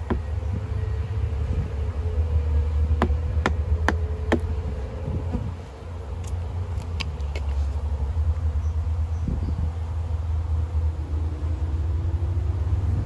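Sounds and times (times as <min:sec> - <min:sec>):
loud steady low rumble: 0:00.0 - 0:13.0.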